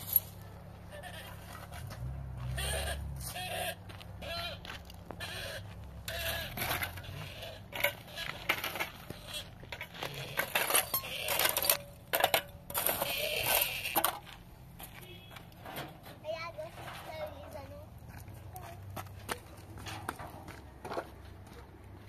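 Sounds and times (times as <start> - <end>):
trowel scraping on broken blocks: 5.2 - 14.3.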